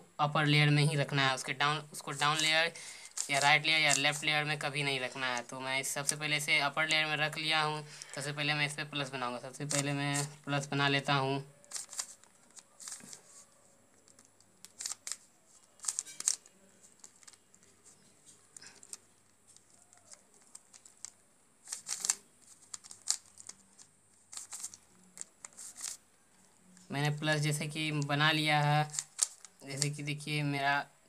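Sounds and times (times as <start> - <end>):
puzzle cube clicking: 2.2 - 4.3, 9.6 - 10.4, 11.5 - 17.8, 18.4 - 26.0, 27.2 - 30.1.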